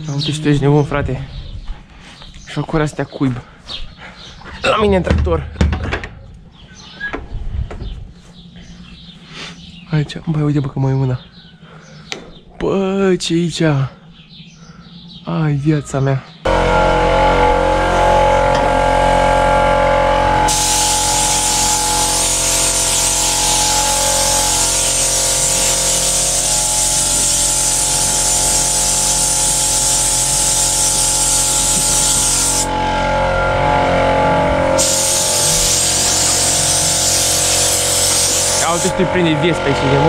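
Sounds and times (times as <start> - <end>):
pressure washer spraying water: 20.2 - 32.8, 34.6 - 39.3.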